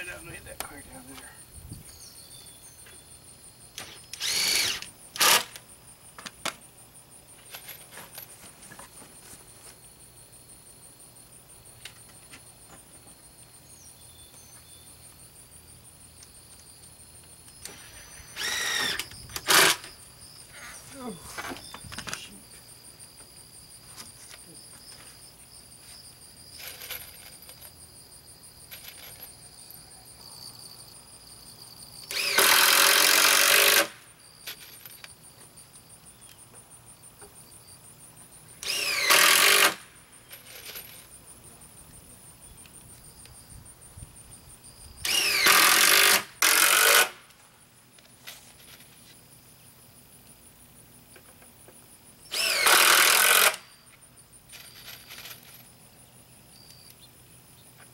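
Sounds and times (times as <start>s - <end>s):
insects buzzing: 0.0s - 57.9s
cordless drill into plywood: 3.8s - 5.6s, 17.6s - 19.9s, 32.1s - 34.0s, 38.6s - 39.8s, 45.0s - 47.2s, 52.3s - 53.7s.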